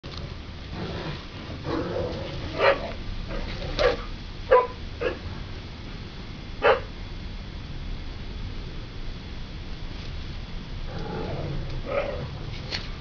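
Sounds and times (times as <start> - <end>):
dog barking: 2.6 - 2.9, 3.8 - 5.2, 6.6 - 6.9.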